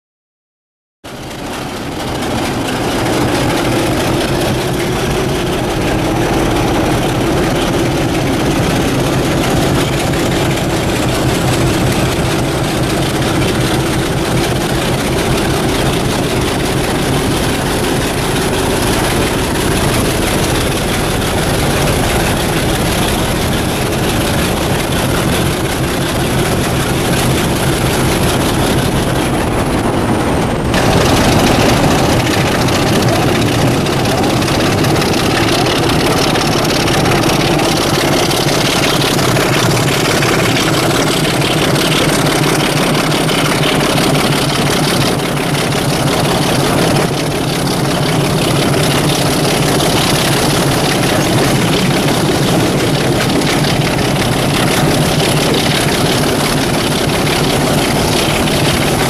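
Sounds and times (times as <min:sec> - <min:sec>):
diesel locomotive engine running: 0:01.1 - 0:59.0.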